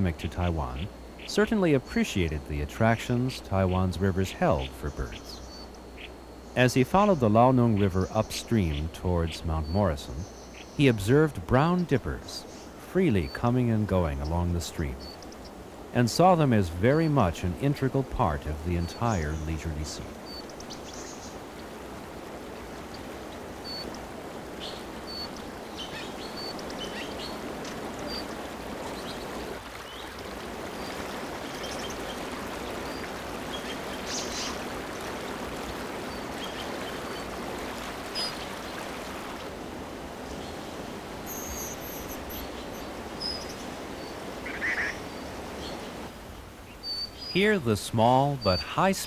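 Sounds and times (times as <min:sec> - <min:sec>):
stream rushing over boulders: 0:15.6 - 0:46.6
bird chirps: 0:41.3 - 0:45.8.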